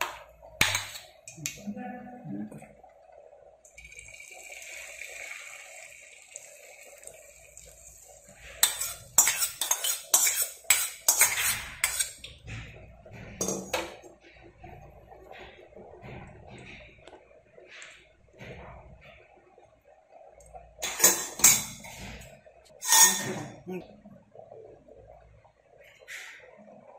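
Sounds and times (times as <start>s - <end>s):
egg sizzling on hot pan: 3.7s - 12.3s
steel spoon scraping and clinking: 8.6s - 12.2s, 22.8s - 23.5s.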